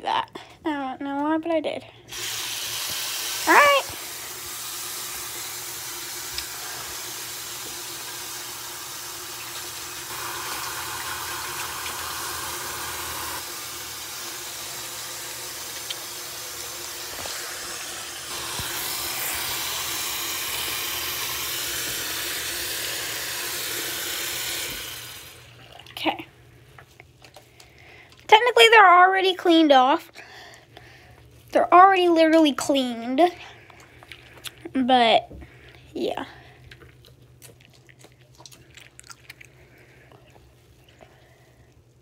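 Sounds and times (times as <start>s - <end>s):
tap water running into sink: 2.1s - 25.8s.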